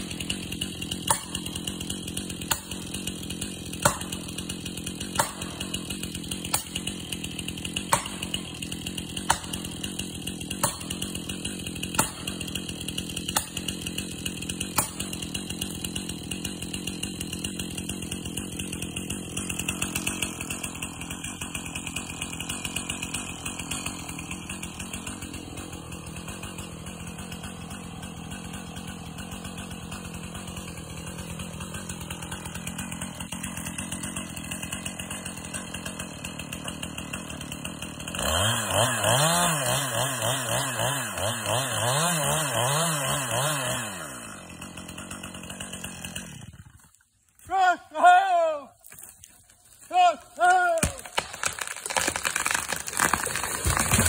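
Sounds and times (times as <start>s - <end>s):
chainsaw cutting tree: 0.0s - 54.0s
chainsaw running: 0.0s - 54.0s
hand tool striking wood: 0.9s - 1.6s, 2.2s - 4.4s, 5.0s - 7.0s, 7.7s - 8.5s, 9.2s - 9.7s, 10.4s - 11.2s, 11.8s - 12.6s, 13.2s - 14.0s, 14.6s - 15.4s.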